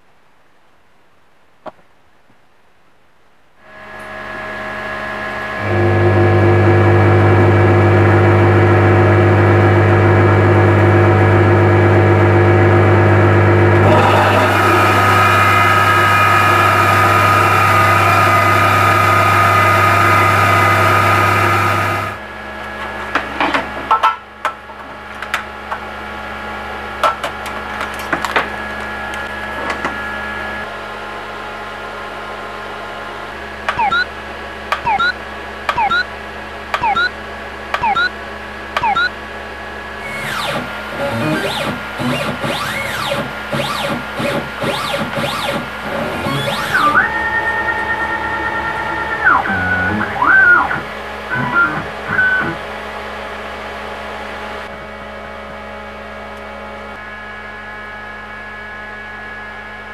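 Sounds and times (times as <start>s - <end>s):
milling machine spindle whine: 4.8s - 22.2s, 40.0s - 52.7s
axis motors chirping: 33.7s - 34.1s, 34.8s - 36.1s, 36.8s - 37.1s, 37.8s - 38.1s, 38.8s - 39.1s, 40.0s - 52.6s
clicks: 33.7s - 34.1s, 34.7s - 36.1s, 36.7s - 37.1s, 37.7s - 38.1s, 38.8s - 39.1s.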